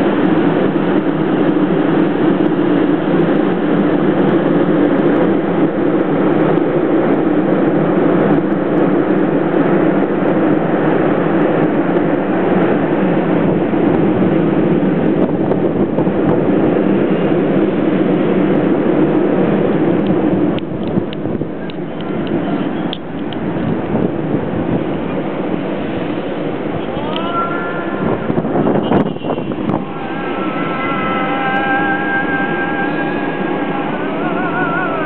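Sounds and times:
mechanical rushing drone: 0:00.0 - 0:35.0
low hum: 0:27.9 - 0:35.0.

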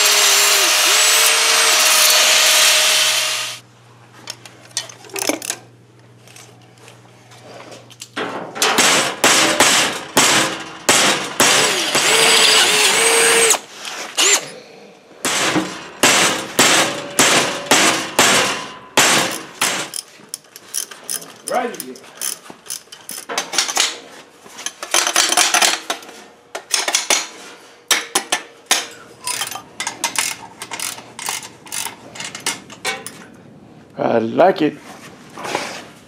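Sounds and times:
cordless drill boring through steel: 0:00.0 - 0:03.6, 0:11.5 - 0:13.6, 0:14.2 - 0:14.4
hammer striking metal: 0:15.3 - 0:19.9.

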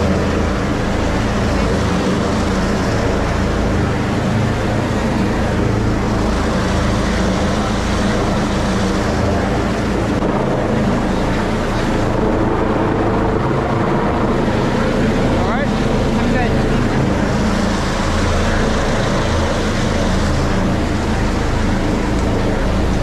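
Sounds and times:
helicopter rotor drone: 0:00.0 - 0:23.0.

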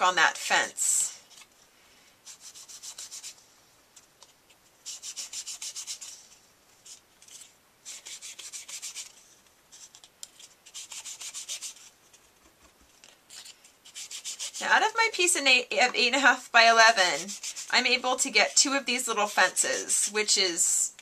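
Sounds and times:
sponge scrubbing on cardstock: 0:02.2 - 0:03.4, 0:04.8 - 0:06.2, 0:07.8 - 0:09.2, 0:10.6 - 0:11.9, 0:13.8 - 0:14.8, 0:16.7 - 0:20.1.

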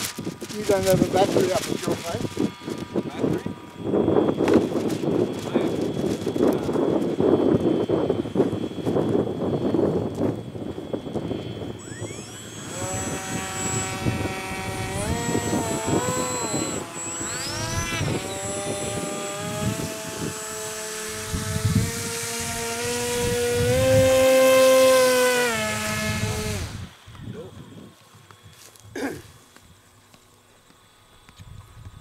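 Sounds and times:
model electric motor whine: 0:00.0 - 0:32.0.

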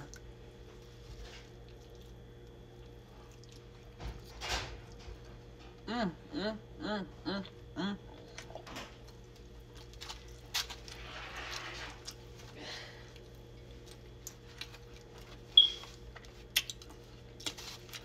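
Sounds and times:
low steady hum: 0:00.0 - 0:18.0
person chewing: 0:01.2 - 0:04.0, 0:08.2 - 0:18.0.

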